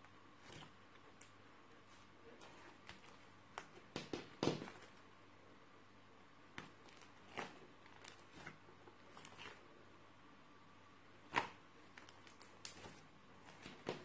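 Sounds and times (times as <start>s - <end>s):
slime squishing with pops: 2.4s - 5.0s, 6.5s - 9.6s, 11.2s - 14.0s.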